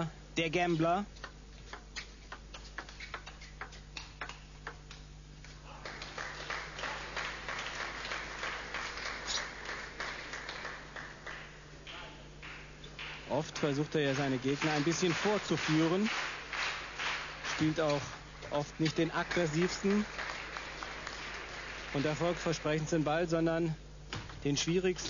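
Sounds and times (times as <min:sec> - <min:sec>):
table tennis ball clicking: 0:01.2 - 0:05.0
crowd applauding: 0:05.6 - 0:23.0.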